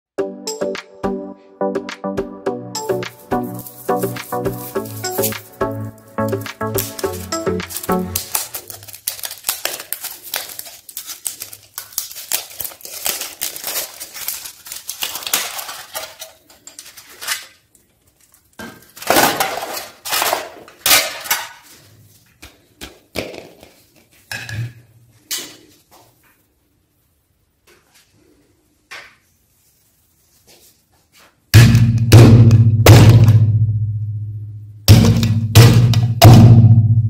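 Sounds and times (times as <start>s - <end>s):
foil wrapper crinkling: 3.1s - 22.2s.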